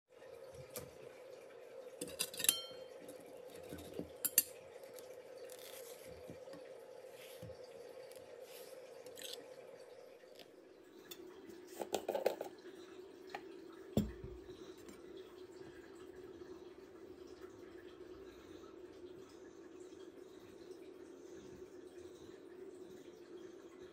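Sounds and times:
knife clinking on plate: 2.0 - 2.8.

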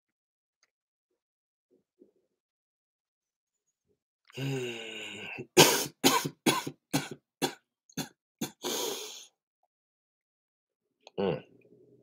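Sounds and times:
man coughing: 5.6 - 8.6
long rough breath: 8.4 - 9.4.

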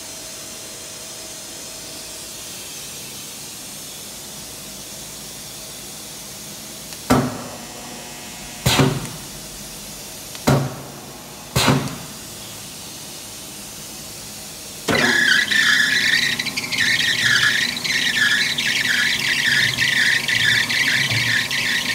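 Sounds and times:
press motor squealing: 14.9 - 21.9.

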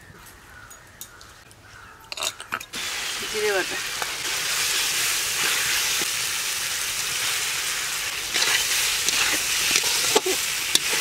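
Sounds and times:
food sizzling in hot oil: 2.7 - 11.0.

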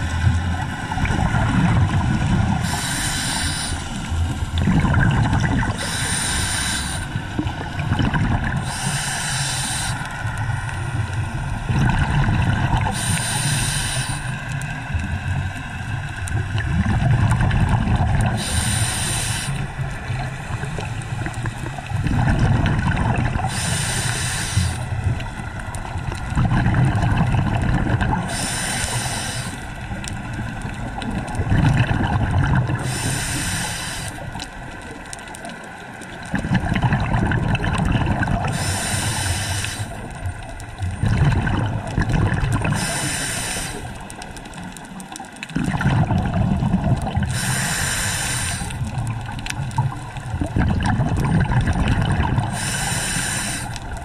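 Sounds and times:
exhaled bubbles rumbling: 0.0 - 54.0
regulator inhale hiss: 2.6 - 4.2, 5.8 - 7.4, 8.6 - 11.5, 12.8 - 14.9, 18.4 - 20.9, 23.4 - 25.0, 28.3 - 30.0, 32.8 - 34.4, 38.5 - 40.2, 42.7 - 44.2, 47.3 - 48.9, 52.4 - 54.0.

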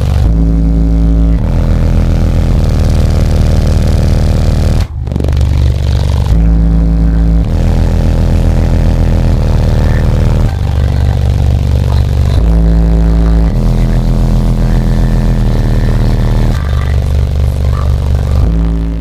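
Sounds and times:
loud bass music through subwoofers: 0.0 - 19.0.

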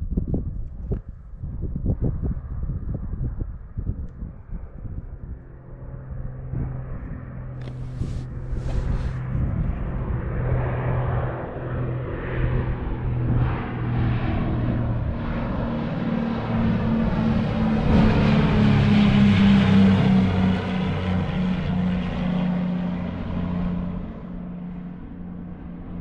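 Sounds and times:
propeller airplane drone: 0.0 - 26.0.

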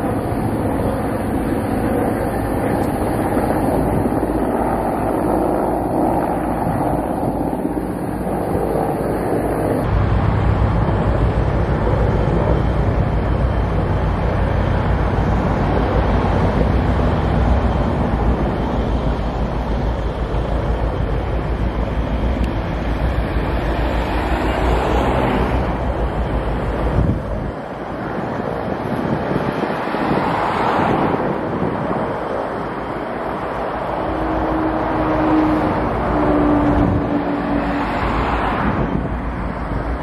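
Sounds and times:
helicopter rotor and engine: 0.0 - 40.0
wind rumble on microphone: 0.0 - 40.0.

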